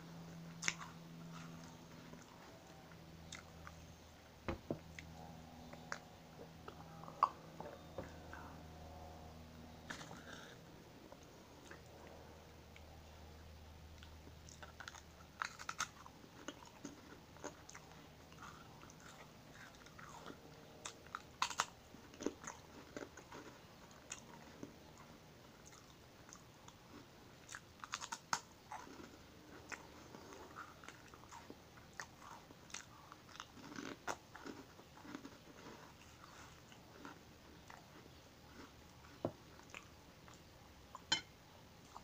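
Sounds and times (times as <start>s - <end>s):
soft chewing crackles: 0.0s - 42.0s
biscuit crunching: 14.0s - 41.2s.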